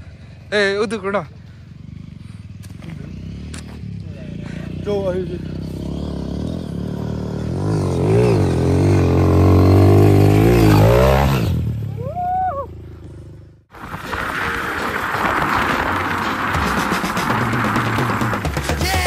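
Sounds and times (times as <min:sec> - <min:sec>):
dirt bike engine revving: 0:01.4 - 0:12.0, 0:14.4 - 0:19.0.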